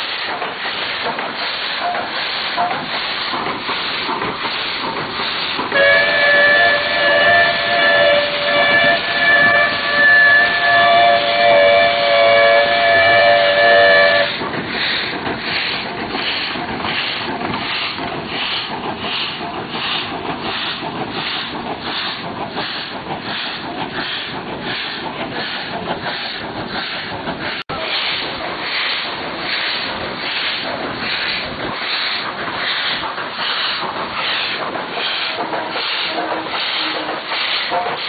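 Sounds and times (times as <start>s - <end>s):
locomotive exhaust chuffs: 0.2s - 38.0s
steam locomotive whistle: 5.7s - 14.4s, 34.4s - 38.0s.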